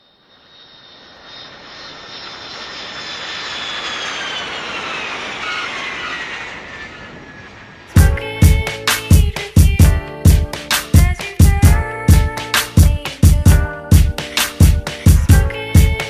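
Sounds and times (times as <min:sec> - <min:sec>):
high whine sliding down: 0:00.0 - 0:11.2
aircraft passing overhead: 0:00.0 - 0:16.0.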